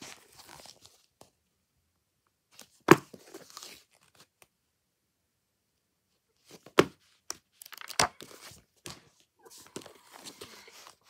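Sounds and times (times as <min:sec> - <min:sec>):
book pages rustling: 0:00.0 - 0:01.4, 0:02.5 - 0:04.3, 0:06.4 - 0:11.0.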